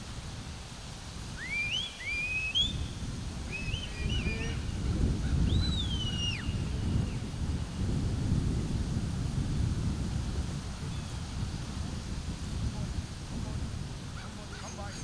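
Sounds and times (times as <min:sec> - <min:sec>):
wind rumble on microphone: 0:00.0 - 0:15.0
herding whistles: 0:01.4 - 0:04.6, 0:05.4 - 0:06.7.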